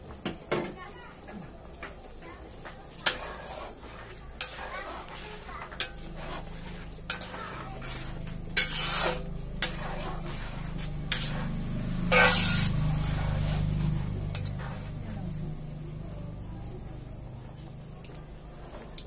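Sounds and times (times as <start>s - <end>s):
steady low hum: 1.0s - 19.0s
spatula scraping pan: 2.3s - 15.8s
metal spatula clinking on pan: 5.7s - 6.2s, 7.1s - 7.6s, 8.5s - 10.0s, 11.1s - 11.4s.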